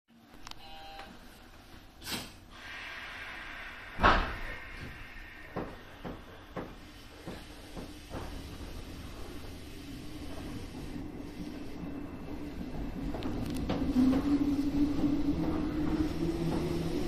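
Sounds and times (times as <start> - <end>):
hiss of air: 2.0 - 12.6
train doors thudding shut: 3.9 - 4.9.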